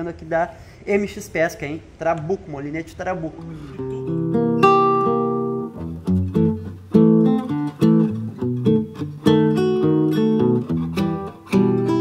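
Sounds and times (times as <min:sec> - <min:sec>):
acoustic guitar playing: 0:03.6 - 0:12.0.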